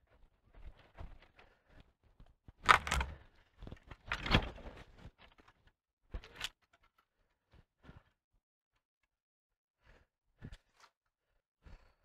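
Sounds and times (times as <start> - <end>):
branches cracking and snapping: 2.6 - 3.2.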